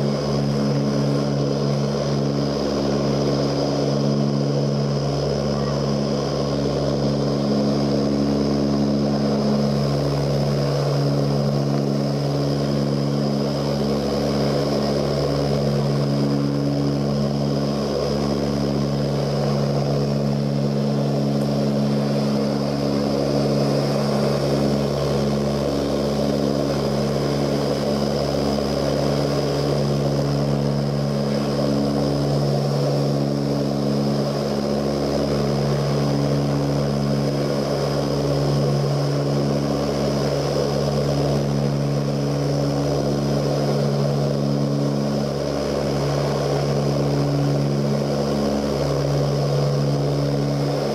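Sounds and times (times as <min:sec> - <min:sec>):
low humming propeller tones: 0:00.0 - 0:50.9
turboprop cabin drone: 0:00.0 - 0:50.9.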